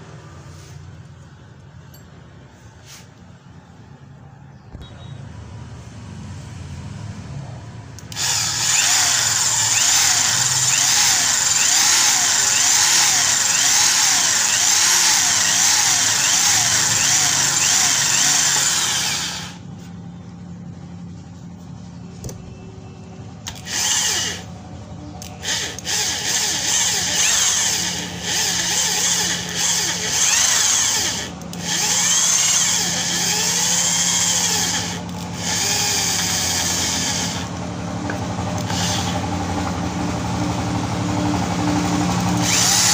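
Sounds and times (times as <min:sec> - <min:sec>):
hammer drill boring into wood: 0:08.0 - 0:19.6, 0:23.5 - 0:24.5, 0:25.2 - 0:39.3, 0:42.1 - 0:42.9.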